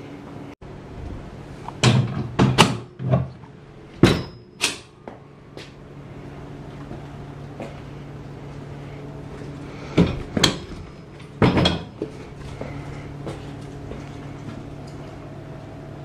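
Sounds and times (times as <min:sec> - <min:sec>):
steady low hum: 0:00.0 - 0:16.0
dump cart knocking and clattering: 0:11.4 - 0:12.0.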